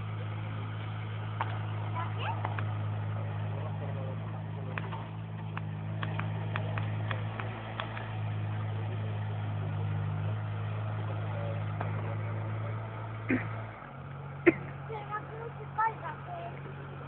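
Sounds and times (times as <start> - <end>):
diesel engine running: 0.0 - 17.0
sharp clicks: 4.7 - 8.2.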